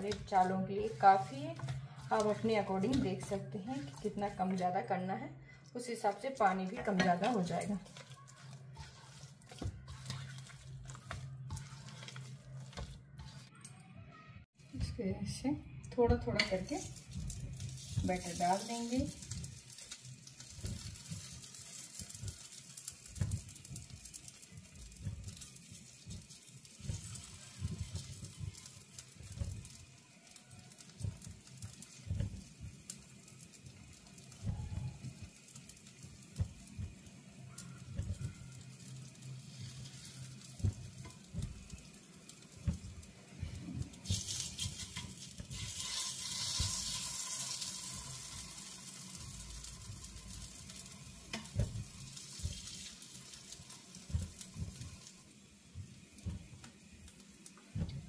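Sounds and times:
spoon scraping steel bowl: 0.0 - 4.9, 5.9 - 13.7, 44.1 - 47.1
hot oil sizzling: 0.0 - 13.6, 14.6 - 58.0.

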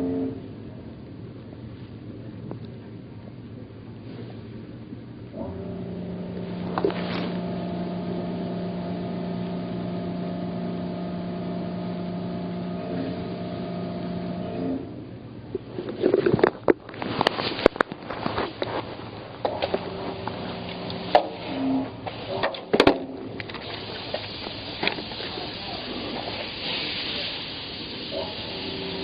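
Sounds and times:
outboard motor running: 5.4 - 15.0, 15.9 - 29.0.

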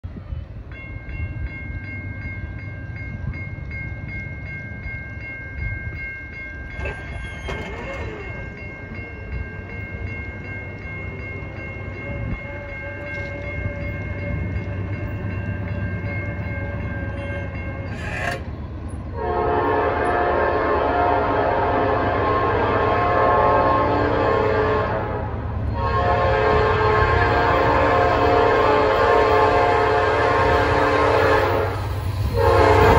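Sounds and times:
freight train rumble: 0.0 - 32.9
crossing warning bell dinging: 0.6 - 32.9
locomotive air horn: 19.2 - 25.2, 25.8 - 32.9.

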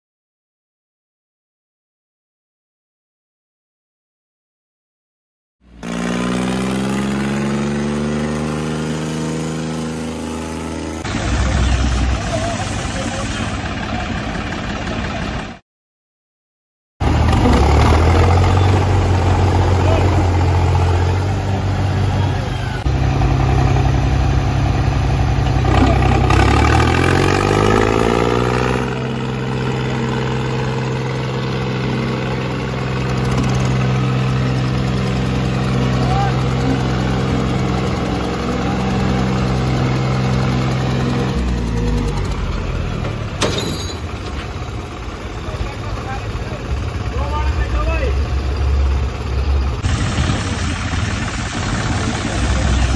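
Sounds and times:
diesel tractor engine running: 5.7 - 15.6, 17.0 - 52.9.

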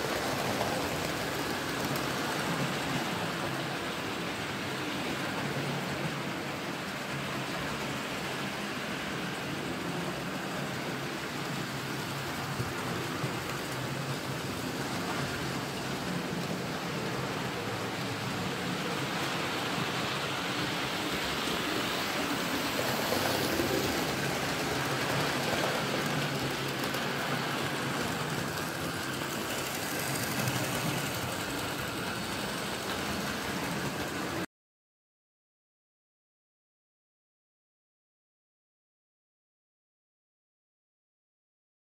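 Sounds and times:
model train wheels clattering: 0.0 - 2.8, 10.8 - 34.4.

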